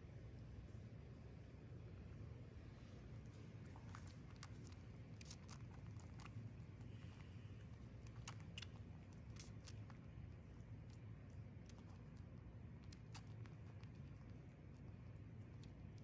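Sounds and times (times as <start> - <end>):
low steady hum: 0.0 - 16.0
squirrel sucking syringe: 3.8 - 16.0.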